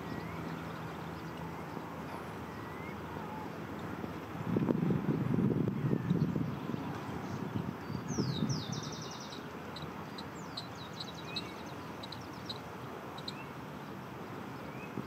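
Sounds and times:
songbird singing: 0.0 - 4.2, 5.7 - 15.0.

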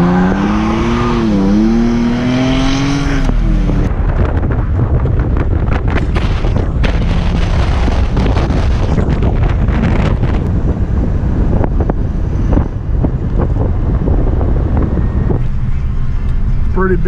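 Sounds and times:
truck driving and road noise: 0.0 - 17.0
wind buffeting microphone: 0.0 - 17.0.

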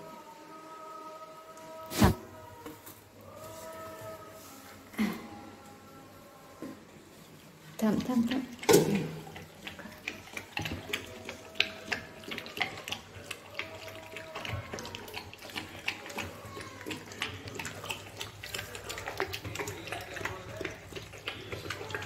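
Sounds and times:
dog chewing and lapping: 7.8 - 22.0.

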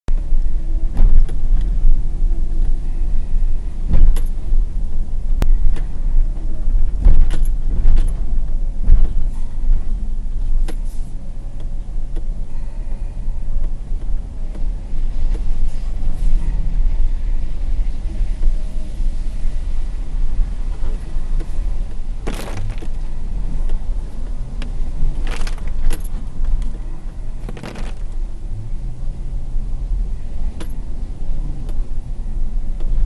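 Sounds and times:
car and tyres rumbling on rough road: 0.1 - 33.0
car jolting knocks and thumps: 22.2 - 23.1, 25.1 - 26.6, 27.4 - 28.2.

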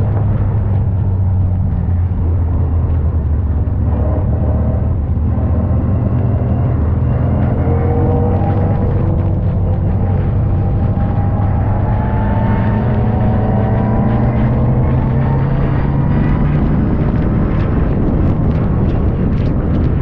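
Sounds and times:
race car engine droning: 0.0 - 20.0.

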